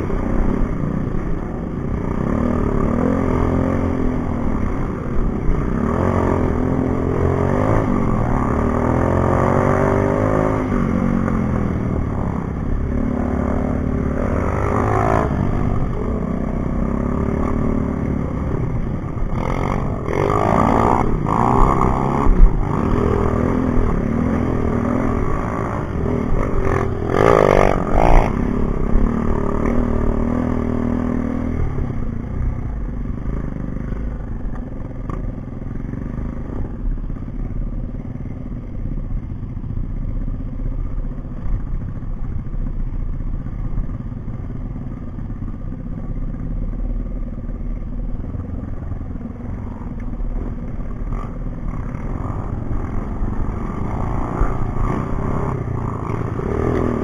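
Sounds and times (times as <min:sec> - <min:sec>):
dirt bike engines revving: 0:00.0 - 0:41.9, 0:43.4 - 0:57.0.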